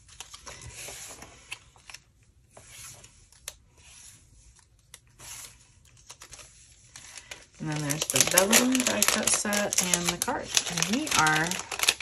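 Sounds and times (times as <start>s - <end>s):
packaging rustling: 4.8s - 12.0s.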